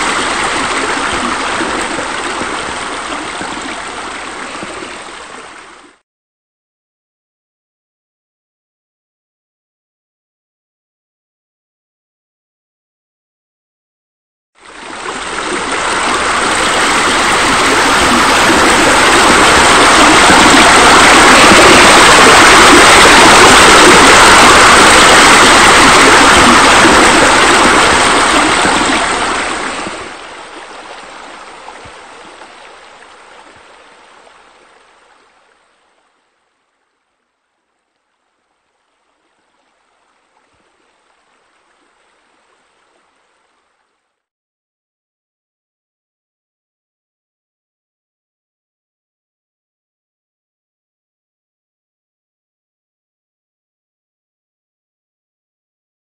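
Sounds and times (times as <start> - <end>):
loud rushing water: 0.0 - 5.8, 14.6 - 35.0.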